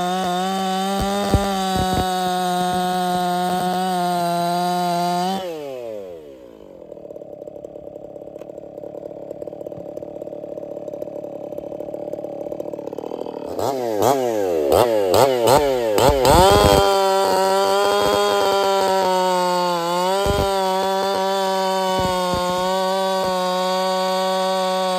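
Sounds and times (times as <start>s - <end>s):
chainsaw revving and idling: 0.0s - 24.9s.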